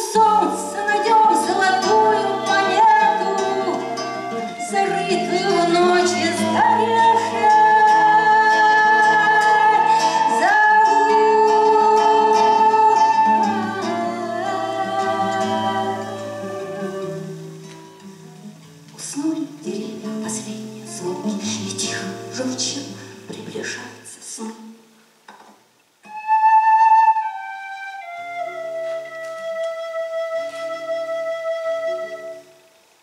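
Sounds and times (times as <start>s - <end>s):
woman singing: 0.0s - 17.4s, 19.0s - 24.8s
acoustic guitar: 0.0s - 33.0s
wooden pipe long notes: 26.0s - 32.8s.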